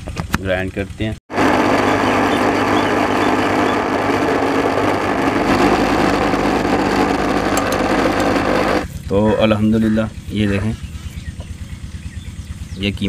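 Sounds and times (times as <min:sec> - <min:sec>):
mixer grinder motor running: 0:01.3 - 0:09.0.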